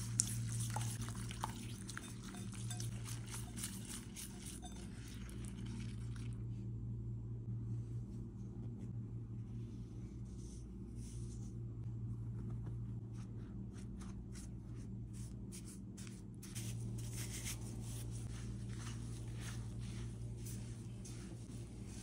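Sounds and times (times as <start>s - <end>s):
spatula scraping a bowl: 0.0s - 5.2s
steady low hum: 0.0s - 22.0s.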